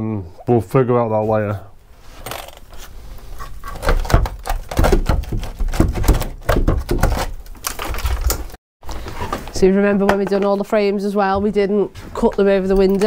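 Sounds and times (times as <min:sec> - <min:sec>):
rotten wood cracking and breaking: 0:03.8 - 0:08.6.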